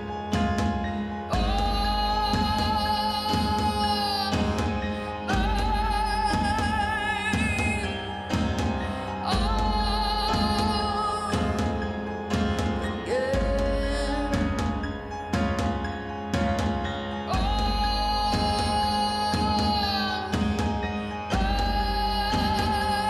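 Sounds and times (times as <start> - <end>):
deep bass: 1.3 - 2.9, 5.3 - 7.0, 9.3 - 11.6, 13.3 - 15.5, 17.3 - 19.0, 21.3 - 23.0
high voice singing long notes: 17.3 - 23.0.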